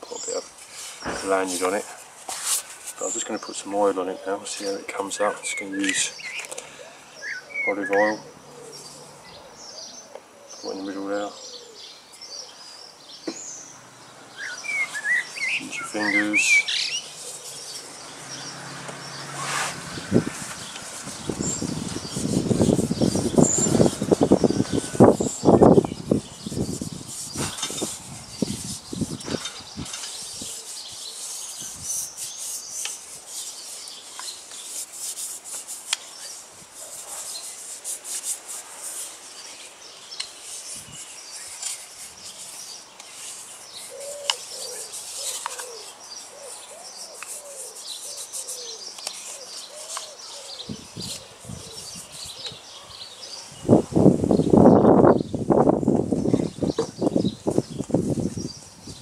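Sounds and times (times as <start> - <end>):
birds calling: 0.0 - 59.0
fingers rubbing wooden cup: 19.2 - 39.1, 40.4 - 45.9, 46.5 - 50.1.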